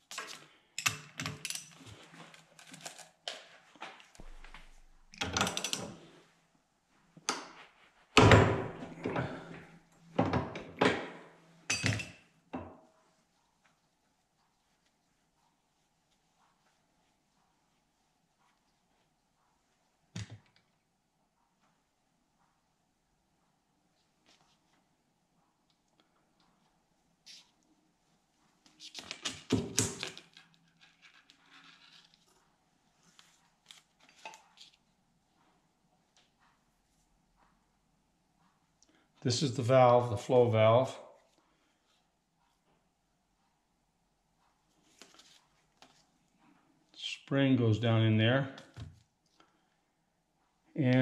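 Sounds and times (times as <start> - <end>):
metal parts clattering on workbench: 5.2 - 6.0.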